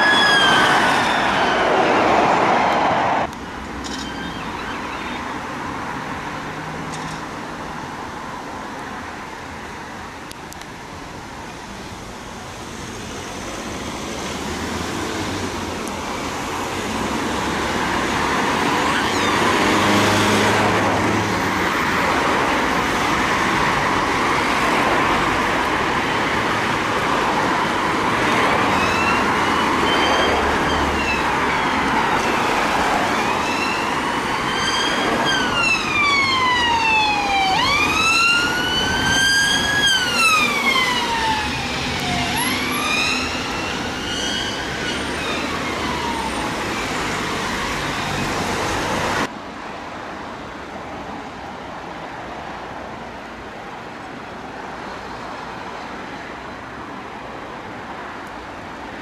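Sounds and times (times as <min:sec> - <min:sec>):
ambulance siren: 0:00.0 - 0:05.4, 0:18.6 - 0:20.6, 0:27.4 - 0:48.3
police siren: 0:00.0 - 0:05.4, 0:18.6 - 0:20.5, 0:28.3 - 0:47.7
road traffic: 0:00.0 - 0:59.0.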